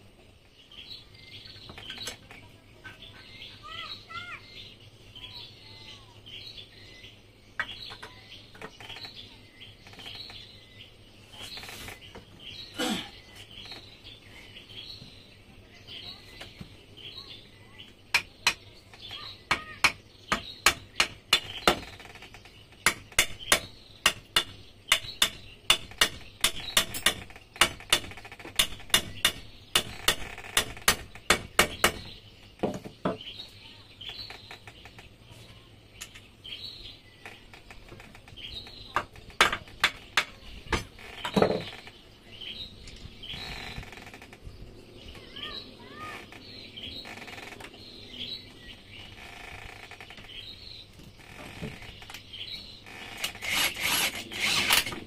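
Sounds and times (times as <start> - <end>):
birds chirping: 0.0 - 55.0
sharp metallic taps: 22.7 - 33.2.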